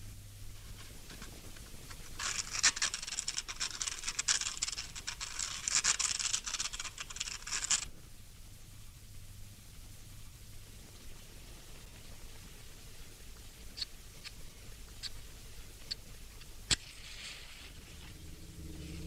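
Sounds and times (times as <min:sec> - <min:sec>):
faint low hum: 0:00.0 - 0:19.0
dense scratchy crackling: 0:00.5 - 0:07.9, 0:15.0 - 0:19.0.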